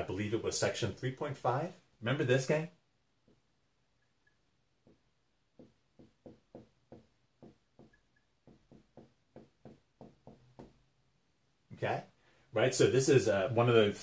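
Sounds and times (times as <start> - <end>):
marker writing on whiteboard: 4.2 - 10.9.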